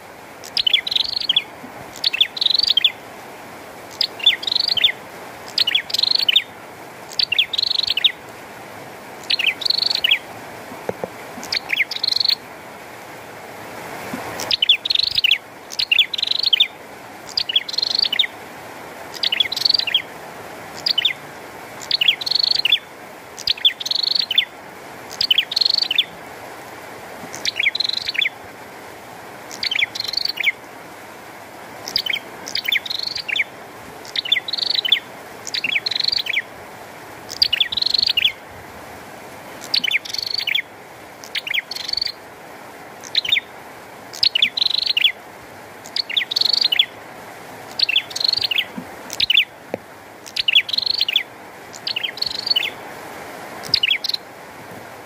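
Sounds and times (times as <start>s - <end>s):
songbird chirping: 0.0s - 3.1s, 3.8s - 8.3s, 9.1s - 10.3s, 10.9s - 12.5s, 14.3s - 18.4s, 19.0s - 20.1s, 20.7s - 26.2s, 27.2s - 28.4s, 29.4s - 30.7s, 31.8s - 36.6s, 37.2s - 38.4s, 39.4s - 42.3s, 43.0s - 45.2s, 45.8s - 52.9s, 53.6s - 54.3s
rain hiss: 0.0s - 55.0s.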